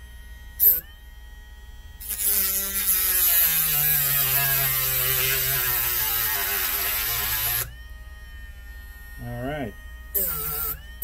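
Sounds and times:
rotary tool grinding metal: 0:02.0 - 0:07.7, 0:10.2 - 0:10.9.

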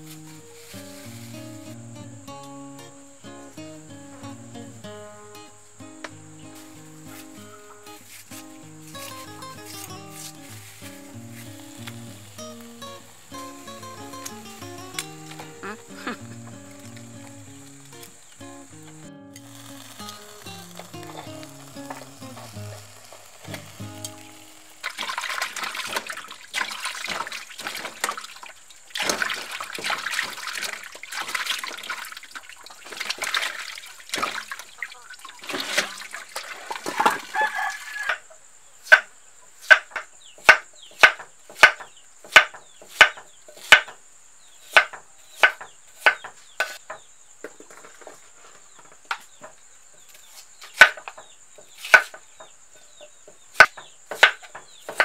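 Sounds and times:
water splashing in a metal basin: 0:24.8 - 0:37.4
knife chopping on a wooden board: 0:39.7 - 0:44.0, 0:44.7 - 0:46.9, 0:51.8 - 0:52.2, 0:53.6 - 0:55.0.

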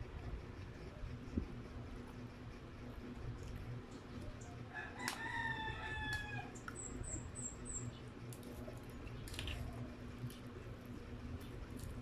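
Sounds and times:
rooster crowing: 0:04.6 - 0:06.6.

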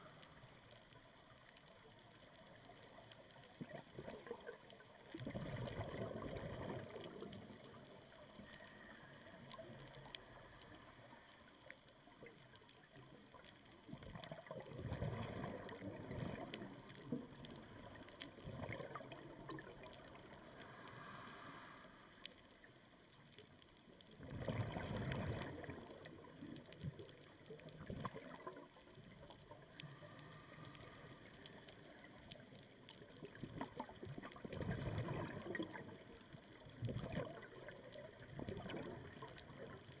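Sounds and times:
regulator hissing inhale: 0:00.0 - 0:01.0, 0:08.2 - 0:11.8, 0:20.2 - 0:22.5, 0:29.6 - 0:32.6
bubbling exhalations underwater: 0:24.2 - 0:25.8, 0:33.7 - 0:35.8.

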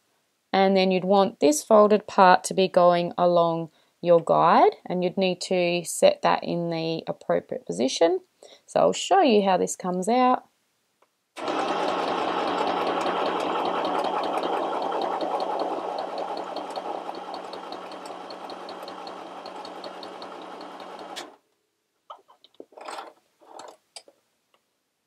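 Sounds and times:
sewing machine motor humming: 0:11.4 - 0:21.4
needle mechanism ticking: 0:12.4 - 0:21.4.

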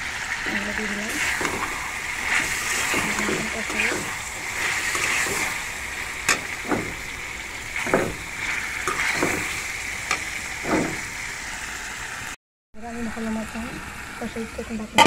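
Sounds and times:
meat sizzling in hot oil: 0:00.0 - 0:15.0
metal spatula scraping pan: 0:01.1 - 0:11.2.

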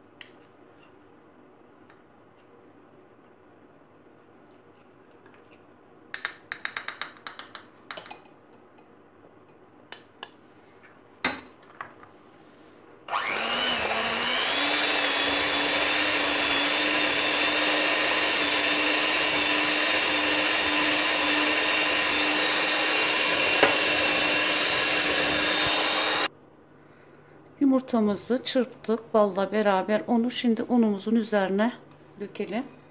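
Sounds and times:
electric mixer whisking: 0:13.1 - 0:26.3.

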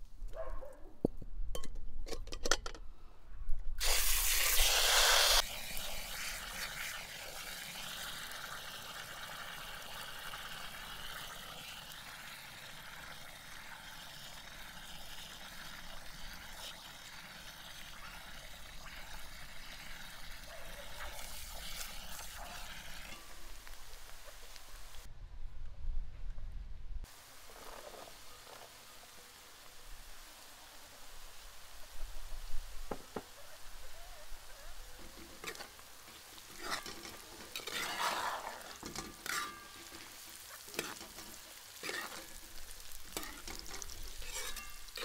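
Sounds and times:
water pouring: 0:03.8 - 0:23.5, 0:35.0 - 0:45.0
running water hiss: 0:03.8 - 0:25.1, 0:27.1 - 0:45.0.

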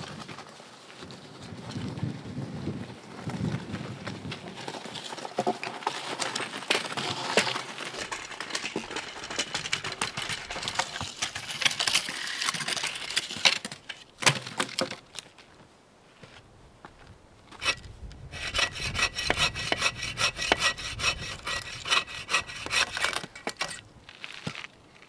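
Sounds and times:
footsteps crunching on forest ground: 0:15.0 - 0:17.7, 0:24.0 - 0:25.0.

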